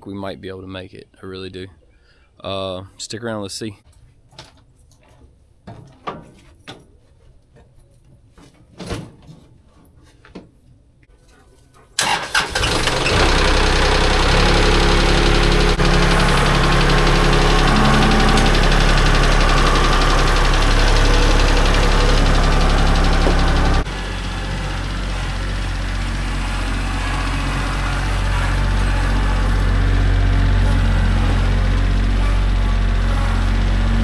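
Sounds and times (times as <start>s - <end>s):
diesel tractor engine running: 12.0s - 34.0s.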